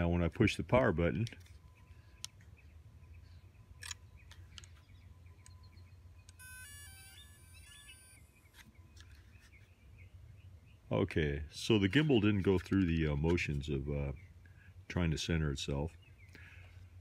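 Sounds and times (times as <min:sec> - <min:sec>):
electronic startup tune beeps: 0:06.3 - 0:08.3.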